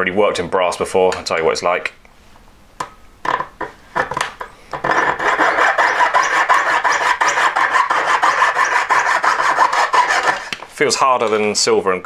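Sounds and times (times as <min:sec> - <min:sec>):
saw rasping through metal rod: 0:04.8 - 0:10.6.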